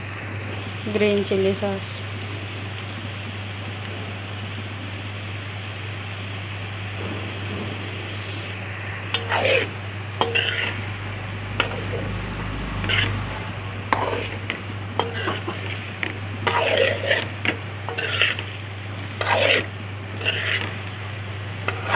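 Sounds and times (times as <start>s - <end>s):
metal spoon scraping a pan: 9.1s - 10.8s, 11.6s - 12.2s, 12.8s - 13.2s, 13.9s - 18.6s, 19.2s - 20.8s, 21.6s - 21.9s.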